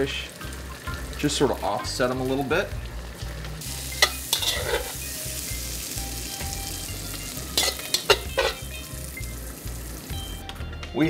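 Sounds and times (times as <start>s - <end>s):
vegetables sizzling in a wok: 0.0s - 10.5s
metal tongs clinking on wok: 3.9s - 5.0s, 7.5s - 8.9s.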